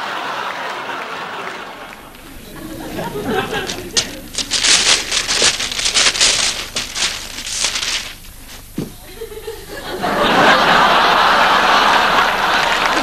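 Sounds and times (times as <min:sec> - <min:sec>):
audience laughter: 0:00.0 - 0:05.8, 0:09.0 - 0:13.0
wrapping paper rustling: 0:02.1 - 0:09.0.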